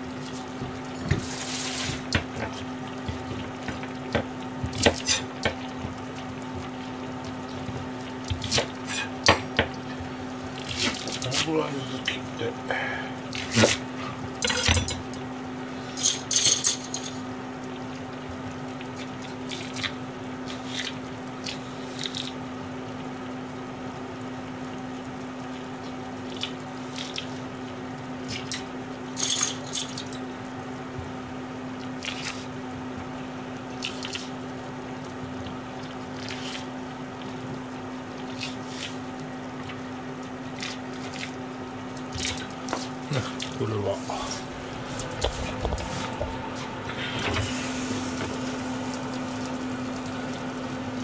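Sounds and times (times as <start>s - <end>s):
soft bubbling of simmering broth: 0.0s - 15.9s, 17.2s - 29.2s, 30.0s - 51.0s
steady low hum: 0.0s - 22.6s, 25.8s - 51.0s.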